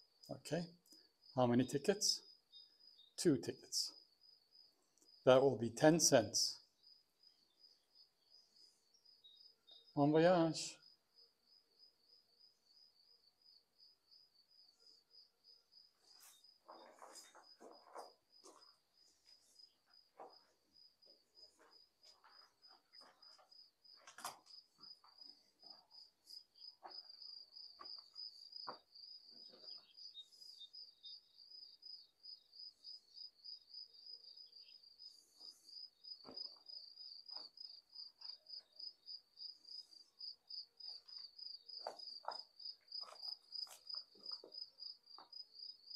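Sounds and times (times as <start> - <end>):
cricket trilling: 0.2 - 45.9
footsteps on debris: 16.1 - 27.2, 41.0 - 45.3.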